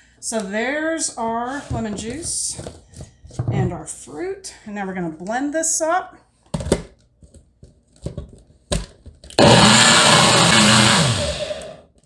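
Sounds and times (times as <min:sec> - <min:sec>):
blender motor running: 0:09.4 - 0:11.8.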